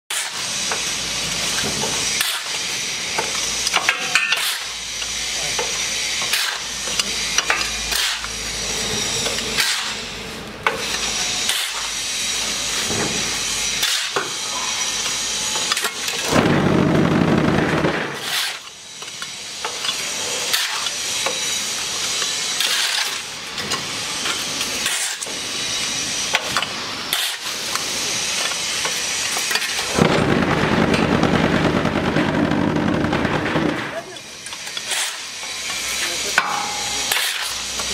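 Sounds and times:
shovel scraping concrete mix: 0:00.1 - 0:04.8, 0:05.4 - 0:16.8, 0:17.6 - 0:18.8, 0:19.6 - 0:30.3, 0:33.2 - 0:37.9
machine low rumble: 0:29.9 - 0:34.1.

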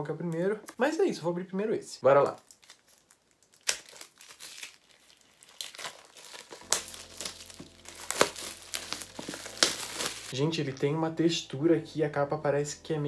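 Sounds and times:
plastic shrink-wrap tearing and crinkling: 0:02.1 - 0:10.4.

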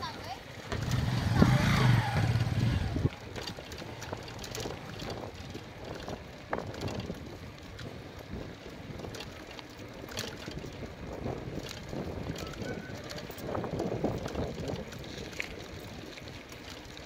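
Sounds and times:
tyre noise on concrete: 0:00.7 - 0:05.2
wind noise on microphone: 0:00.7 - 0:16.3
small clicks and rattles: 0:03.0 - 0:17.0.

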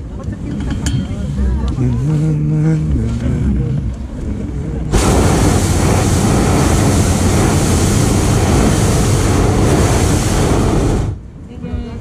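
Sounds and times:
propane burner rushing blast: 0:04.9 - 0:11.3.

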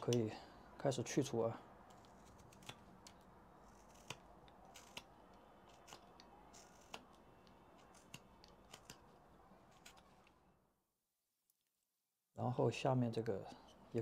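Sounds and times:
quiet hiss: 0:00.0 - 0:11.8
knife cutting wood: 0:01.8 - 0:10.4.

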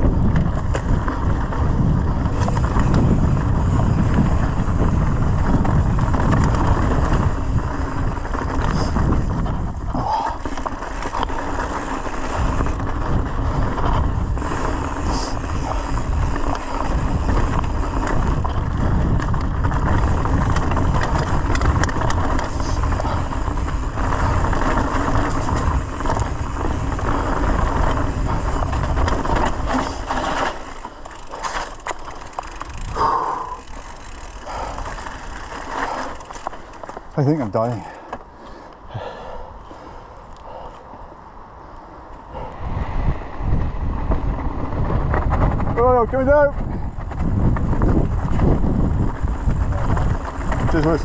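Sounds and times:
bike rattling: 0:00.0 - 0:40.6, 0:42.3 - 0:51.0
tyres over loose stones: 0:05.2 - 0:38.3, 0:45.3 - 0:51.0.

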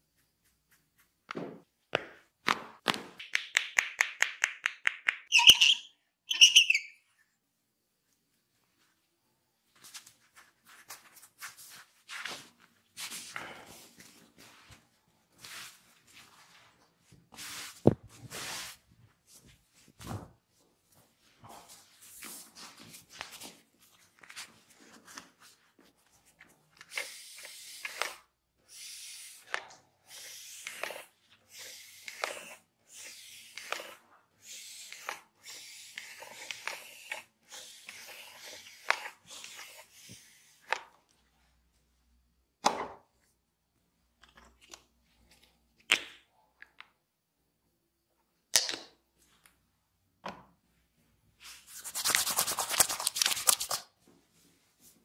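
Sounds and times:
hands rubbing skin: 0:51.4 - 0:53.9.

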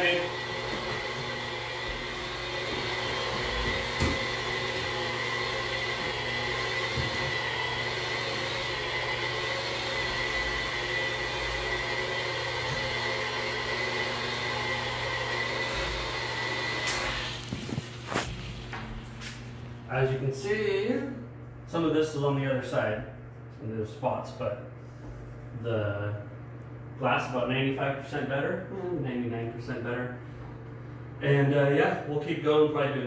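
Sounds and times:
rotary polisher motor whine: 0:00.0 - 0:18.3.

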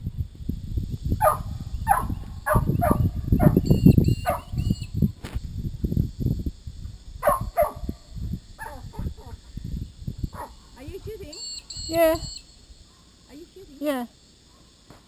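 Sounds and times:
dog barking: 0:01.2 - 0:03.6, 0:04.2 - 0:04.5, 0:07.2 - 0:07.9, 0:08.6 - 0:09.4, 0:10.4 - 0:10.6.

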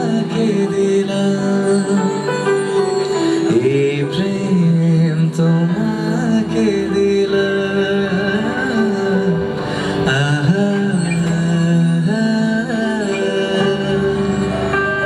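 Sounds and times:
instrumental accompaniment: 0:00.0 - 0:15.0.

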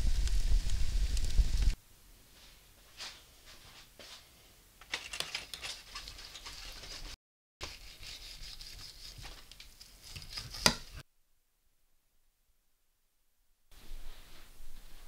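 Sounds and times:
knife sawing through crackling crust: 0:05.8 - 0:11.0.

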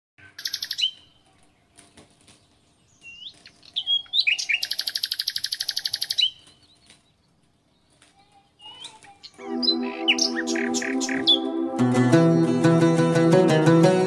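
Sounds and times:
bird chirps: 0:00.2 - 0:11.6
bird trilling fast: 0:00.4 - 0:01.0, 0:03.1 - 0:06.4, 0:09.7 - 0:11.4.

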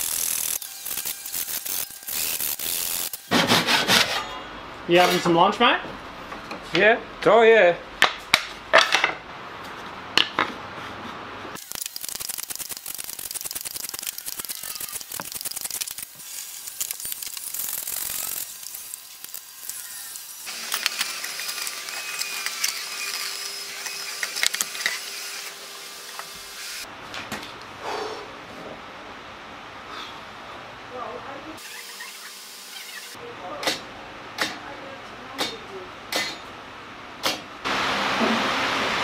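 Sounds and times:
hand saw and plane rasping: 0:03.3 - 0:04.2.

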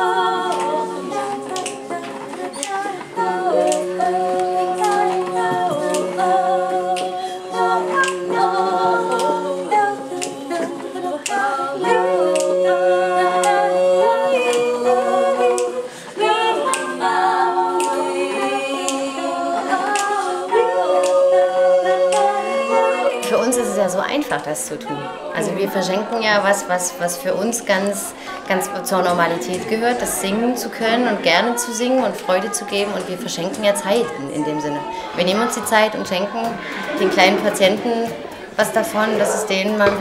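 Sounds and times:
women singing in harmony: 0:00.0 - 0:40.0.

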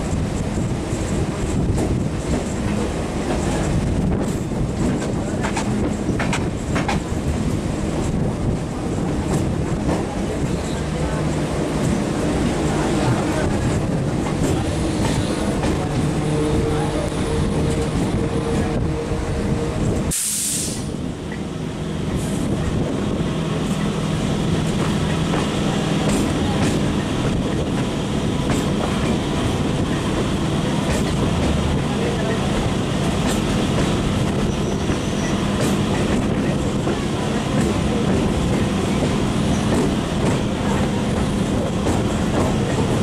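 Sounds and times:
train wheels rumbling on rails: 0:00.0 - 0:43.0
short hiss: 0:20.1 - 0:21.0.

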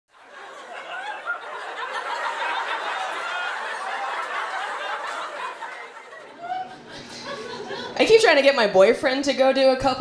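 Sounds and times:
audience laughing and chattering: 0:00.1 - 0:08.1.

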